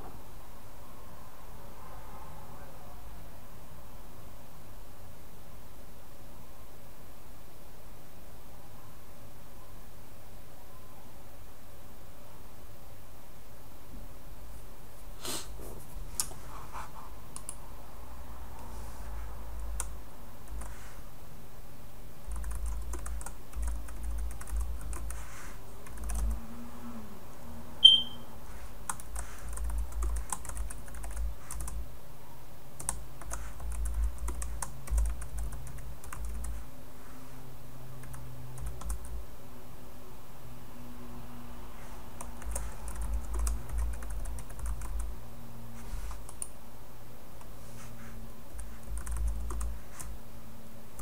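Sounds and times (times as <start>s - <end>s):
short high-pitched beep: 27.8s - 28.3s.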